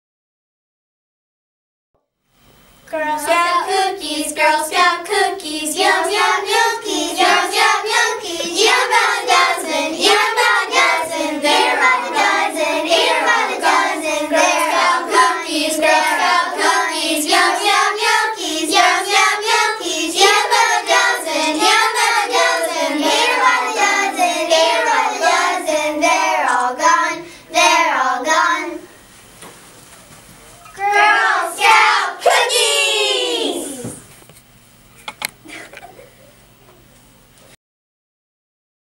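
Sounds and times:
girls singing together: 0:02.9 - 0:28.9, 0:30.8 - 0:34.0.

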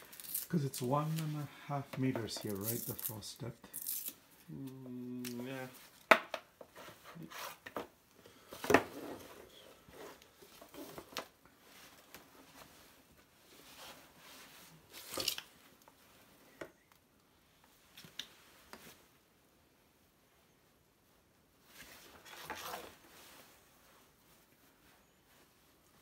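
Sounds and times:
cable rustling: 0:00.0 - 0:16.6.

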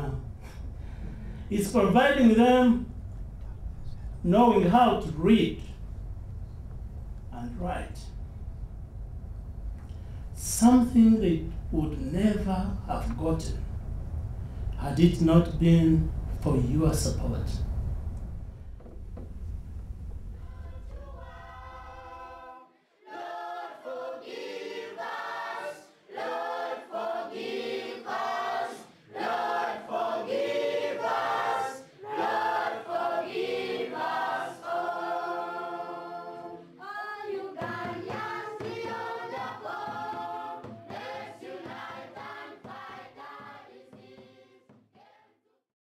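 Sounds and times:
choir singing: 0:20.3 - 0:45.5.

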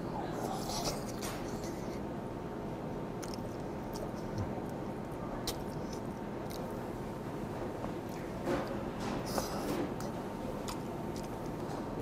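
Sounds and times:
faint steady hum: 0:00.0 - 0:12.0
close-up chewing: 0:00.3 - 0:02.1, 0:03.1 - 0:07.0, 0:07.8 - 0:11.9
wet mouth clicks and smacks: 0:03.2 - 0:04.4, 0:05.4 - 0:06.8.

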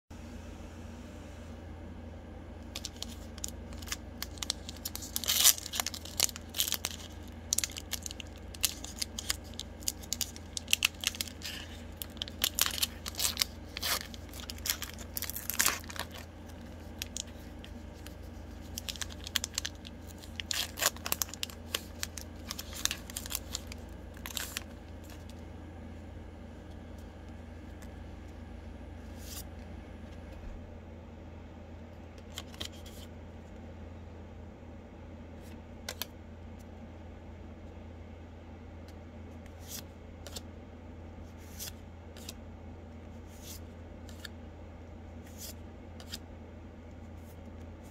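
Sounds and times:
foil wrapper crinkling and tearing: 0:02.7 - 0:25.4.

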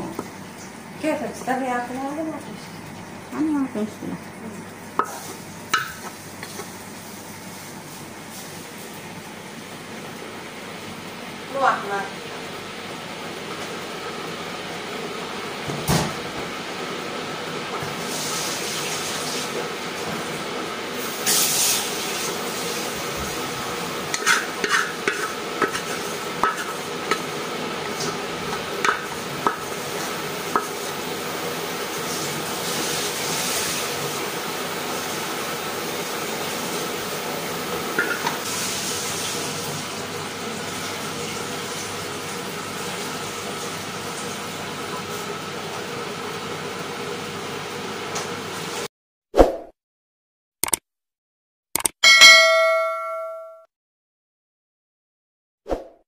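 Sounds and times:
spatula tapping pot: 0:05.0 - 0:06.6, 0:24.1 - 0:27.3, 0:30.5 - 0:30.8
spatula scraping metal pot: 0:24.1 - 0:27.3.

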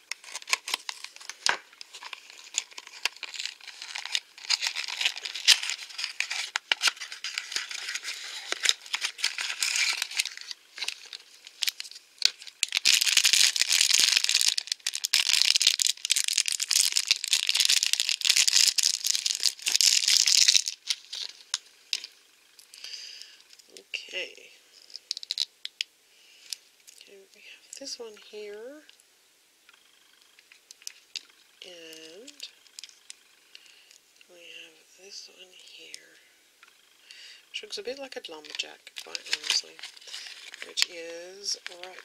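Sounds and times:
foil packet crinkling: 0:00.0 - 0:23.6, 0:24.8 - 0:25.8, 0:37.8 - 0:42.0.

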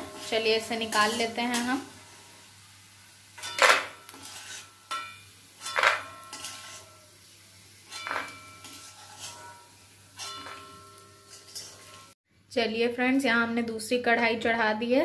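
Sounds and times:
metal skimmer clanking on iron pan: 0:00.0 - 0:01.8, 0:03.4 - 0:07.1, 0:07.9 - 0:12.2.

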